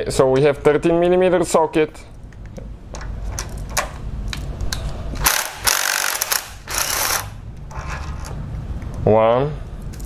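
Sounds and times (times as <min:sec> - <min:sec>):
ratchet wrench clicking: 0:05.2 - 0:07.3.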